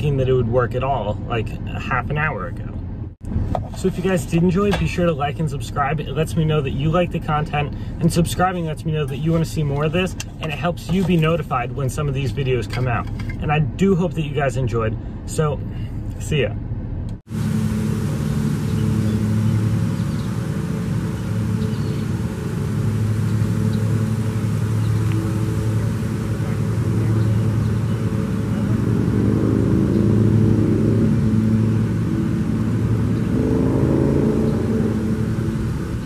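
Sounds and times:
road noise: 0:00.0 - 0:36.0
car engine accelerating: 0:17.0 - 0:36.0.

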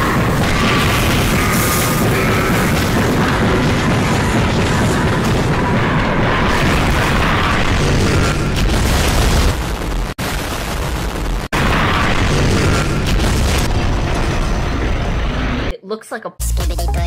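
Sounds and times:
rumble of explosions: 0:00.0 - 0:15.7
music: 0:16.4 - 0:17.0.

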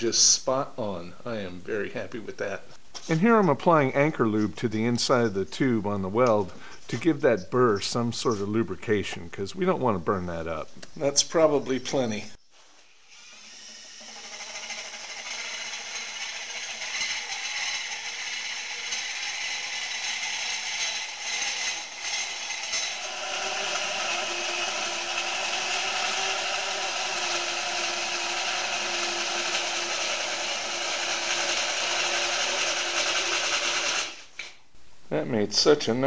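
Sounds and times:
drill burr grinding inside steel tubing: 0:13.0 - 0:34.3.

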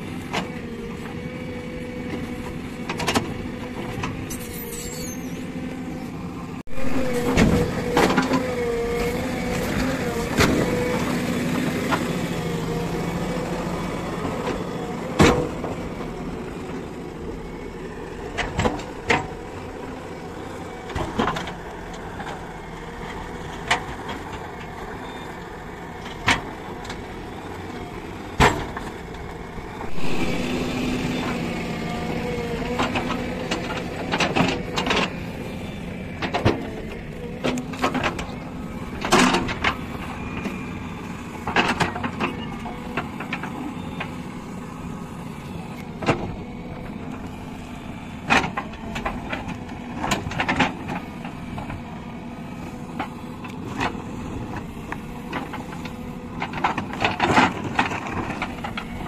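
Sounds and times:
diesel engine under load: 0:00.0 - 0:59.0
digger bucket knocks and clanks: 0:06.7 - 0:16.1, 0:18.3 - 0:22.5, 0:28.2 - 0:29.3, 0:29.9 - 0:40.6, 0:41.4 - 0:44.2, 0:45.9 - 0:47.2, 0:52.6 - 0:59.0.

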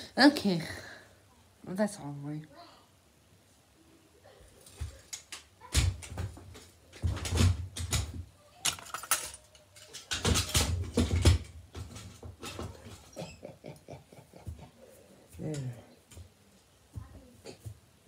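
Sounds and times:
toys bumping and rustling: 0:04.2 - 0:13.6, 0:14.4 - 0:18.0.

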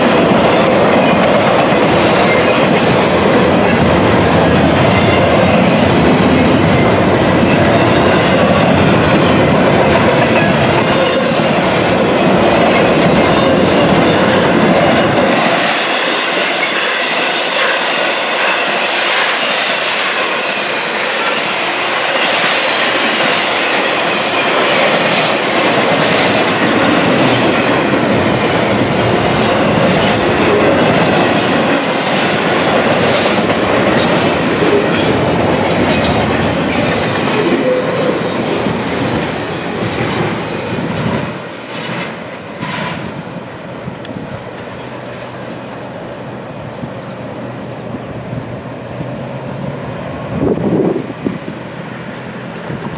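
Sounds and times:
freight train wheels rumbling: 0:00.0 - 0:52.9.

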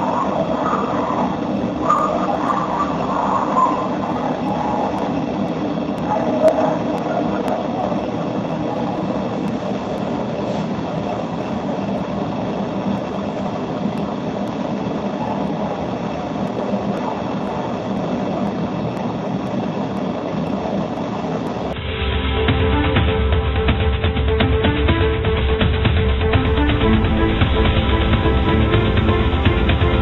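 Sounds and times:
music: 0:21.8 - 0:30.0.

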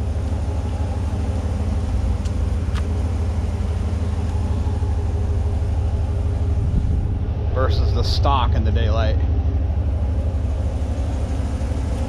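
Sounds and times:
pickup engine idling: 0:00.0 - 0:12.0.

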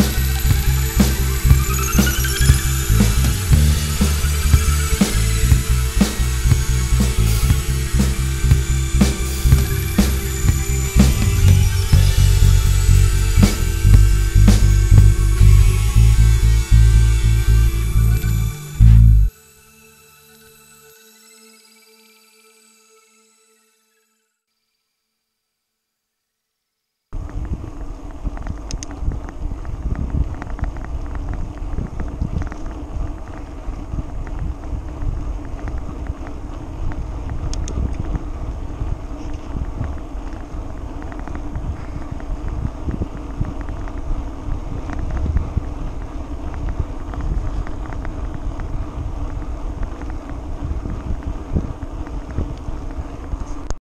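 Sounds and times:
bicycle tyres rolling on tarmac: 0:27.2 - 0:53.7
wind rushing over microphone: 0:27.2 - 0:53.8.

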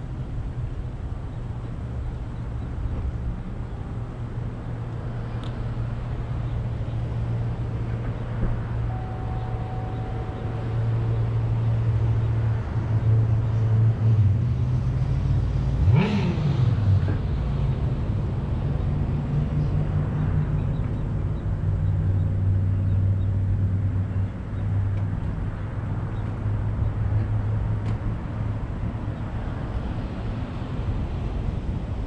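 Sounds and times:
vehicle engine idling: 0:08.6 - 0:13.1.

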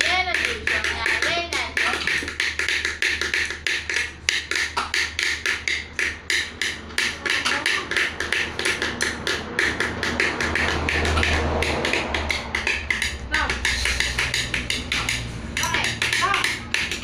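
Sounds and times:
lion dance percussion beat: 0:00.0 - 0:17.0.

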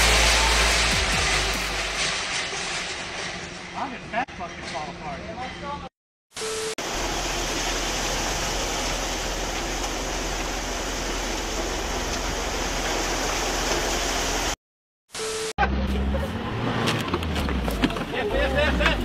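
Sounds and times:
wet concrete pouring: 0:06.9 - 0:14.6.

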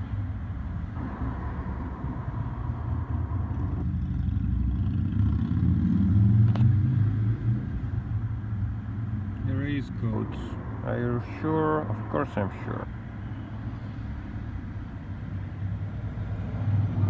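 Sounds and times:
faint steady tone: 0:00.0 - 0:04.7
motor vehicle rumble: 0:00.0 - 0:17.0.

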